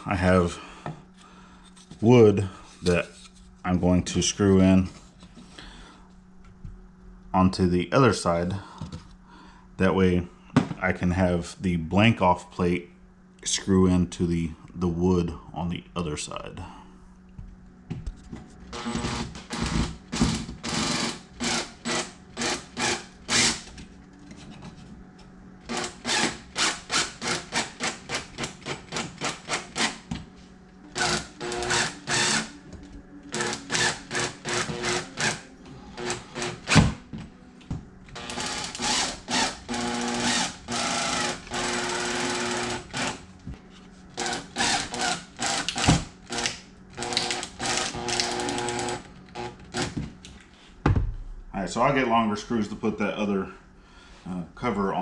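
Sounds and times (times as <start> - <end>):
drill driving screws into wood: 18.8 - 23.7, 25.7 - 30.0, 31.0 - 32.5, 33.3 - 35.4, 36.0 - 37.0, 38.2 - 43.2, 44.2 - 50.0.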